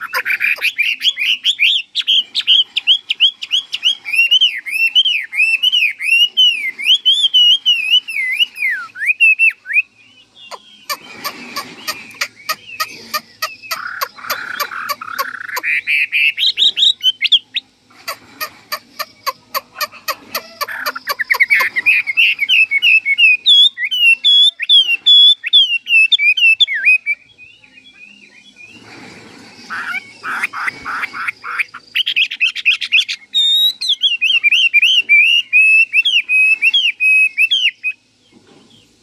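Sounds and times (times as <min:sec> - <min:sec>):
bird singing whistled phrases: 0:00.0 - 0:11.0, 0:21.3 - 0:28.8, 0:31.9 - 0:38.0
bird harsh rasping notes: 0:00.0 - 0:27.3, 0:27.9 - 0:38.2.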